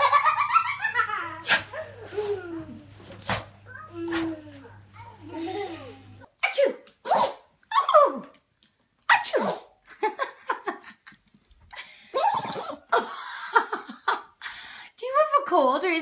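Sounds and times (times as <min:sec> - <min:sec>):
dogs sneezing: 0:01.4 - 0:02.4, 0:03.1 - 0:04.4, 0:06.4 - 0:07.5, 0:09.1 - 0:09.8.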